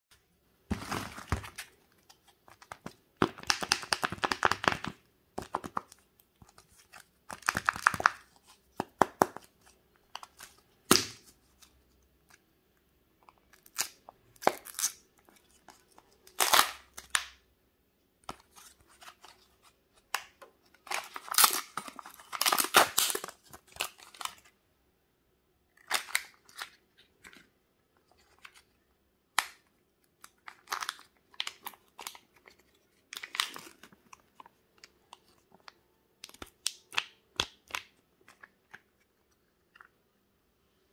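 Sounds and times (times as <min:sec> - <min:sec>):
plastic wrapper crinkling and tearing: 0:00.7 - 0:08.5, 0:13.5 - 0:17.4, 0:20.1 - 0:24.5, 0:25.8 - 0:27.4, 0:30.2 - 0:38.9.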